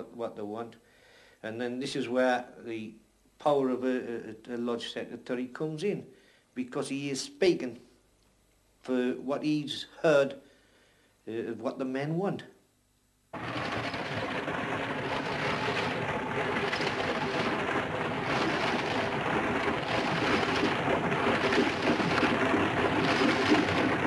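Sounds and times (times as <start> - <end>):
mining machinery din: 13.4 - 24.0.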